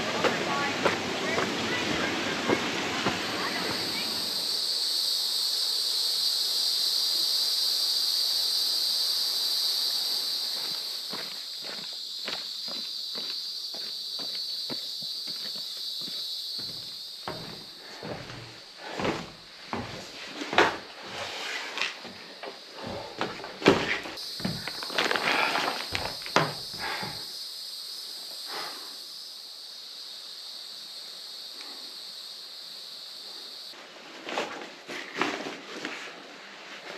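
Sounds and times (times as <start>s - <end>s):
footsteps on dirt trail: 0.0s - 4.6s, 10.5s - 20.9s, 21.9s - 27.3s
insect chorus drone: 0.0s - 36.9s
knocks on wooden floorboards: 16.6s - 20.8s, 25.9s - 27.2s.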